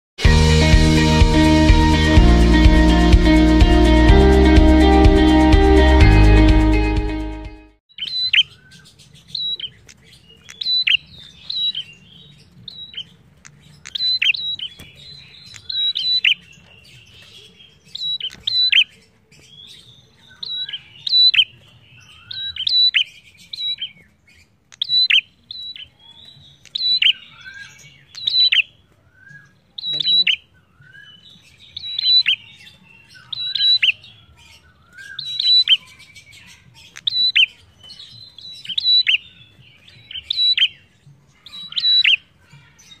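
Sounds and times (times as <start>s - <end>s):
songbird chirping: 0.5s - 43.0s.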